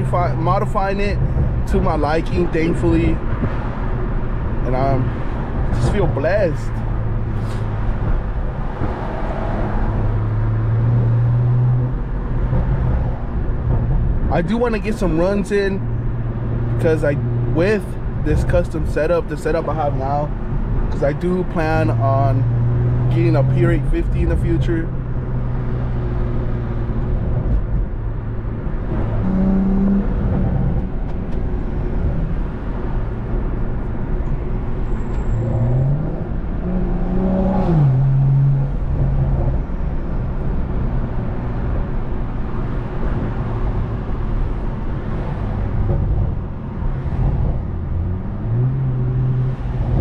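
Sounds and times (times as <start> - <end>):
road noise: 0.0 - 50.0
car engine accelerating through gears: 25.0 - 50.0.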